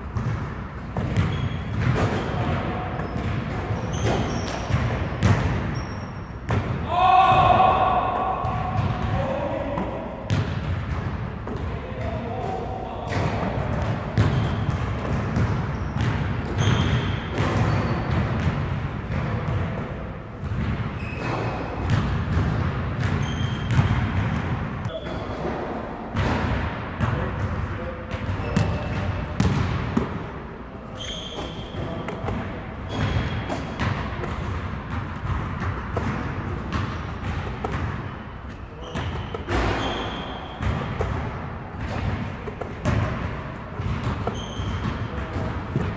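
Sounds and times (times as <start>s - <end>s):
basketball bouncing on hardwood floor: 0.1s - 5.9s, 13.1s - 19.7s, 20.4s - 24.7s, 28.1s - 30.2s, 31.4s - 45.9s
rubber shoe squeaks on floor: 1.1s - 2.4s, 3.0s - 4.8s, 5.7s - 6.4s, 14.3s - 14.8s, 15.7s - 18.1s, 21.0s - 21.8s, 23.2s - 23.9s, 30.9s - 33.8s, 38.5s - 40.9s, 44.2s - 45.0s
short high squeaks: 31.0s - 31.8s, 38.8s - 40.6s, 44.3s - 44.8s.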